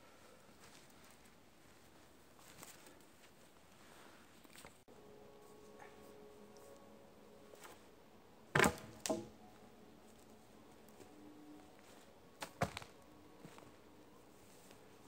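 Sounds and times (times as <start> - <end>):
wooden poles knocking: 8.6 - 9.4.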